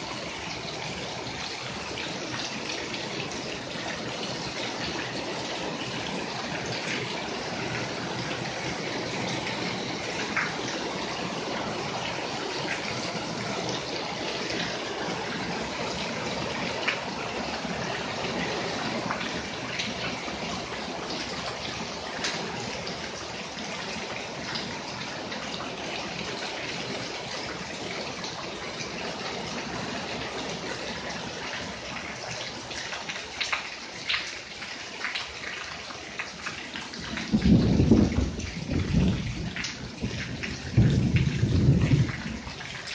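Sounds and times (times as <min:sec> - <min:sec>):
loud water drips: 0:00.0 - 0:42.9
steady rain: 0:00.0 - 0:42.9
water splashing onto paving: 0:00.0 - 0:42.9.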